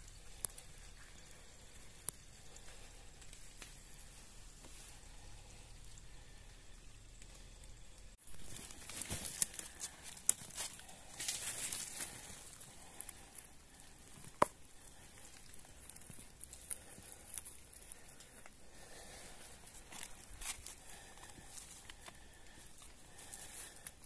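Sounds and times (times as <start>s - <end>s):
dry leaves and twigs rustling: 8.2s - 24.0s
twigs snapping: 8.4s - 24.0s.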